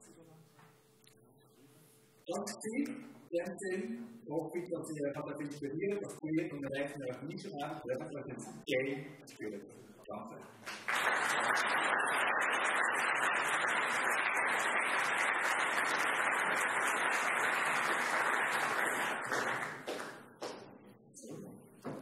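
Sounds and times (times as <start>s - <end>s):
audience applauding: 10.6s - 20.3s.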